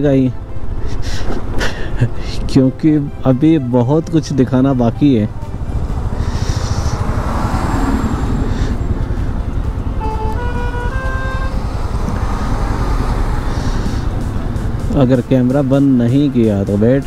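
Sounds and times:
wind and motorcycle engine rumble: 0:00.0 - 0:17.0
vehicle horn rising tones: 0:09.8 - 0:12.3.

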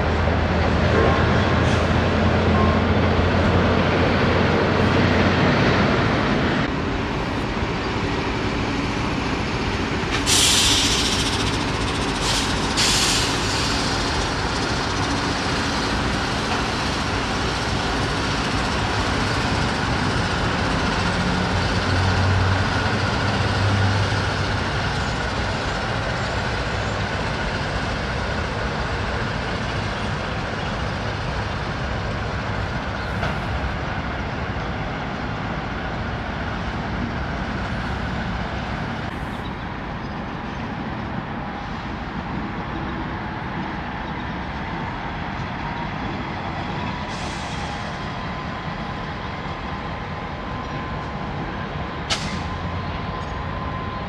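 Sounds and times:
diesel locomotives droning: 0:00.0 - 0:54.0
short hisses: 0:10.3 - 0:11.3.

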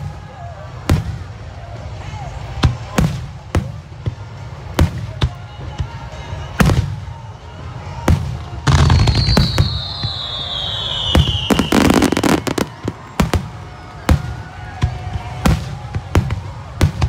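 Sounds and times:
crackling firework reports: 0:08.1 - 0:17.0
falling whistle: 0:08.8 - 0:12.6.

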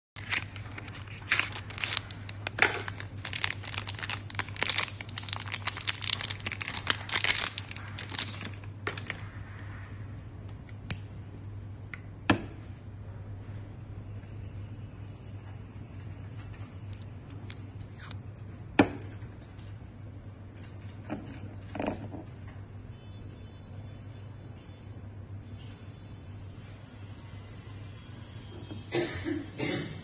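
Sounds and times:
packaging tearing and crinkling: 0:00.2 - 0:09.2, 0:16.9 - 0:18.2.

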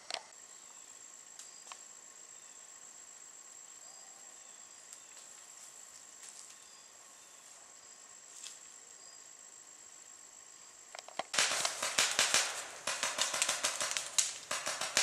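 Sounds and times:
insects droning: 0:00.0 - 0:15.0
paintball markers firing: 0:11.0 - 0:15.0.

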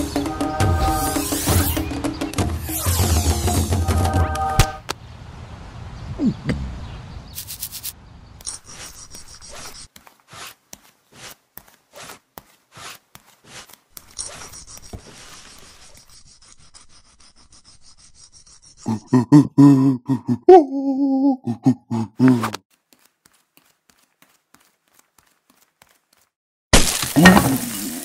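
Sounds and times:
cardboard box scraping on stone: 0:08.7 - 0:16.2
man grunting and groaning: 0:18.9 - 0:22.6.

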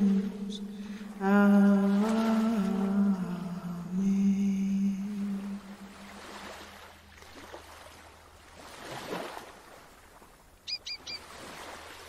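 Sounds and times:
sea waves washing: 0:00.0 - 0:12.0
bird chirps: 0:10.6 - 0:11.3.

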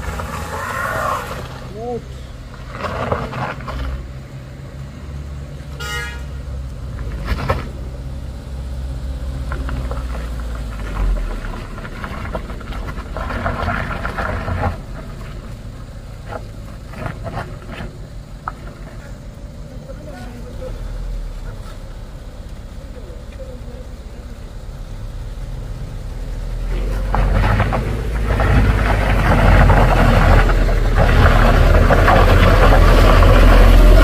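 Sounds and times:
car engine running low: 0:00.0 - 0:34.0
vehicle horn toot: 0:05.7 - 0:06.4.

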